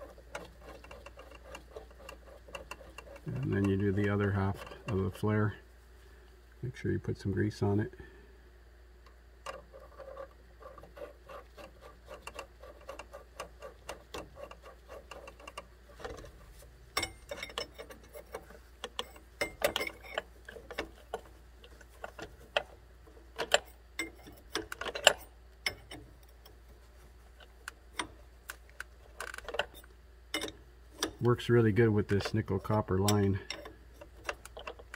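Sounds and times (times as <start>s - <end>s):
small metal clicks: 9.0s - 26.7s, 27.3s - 34.9s.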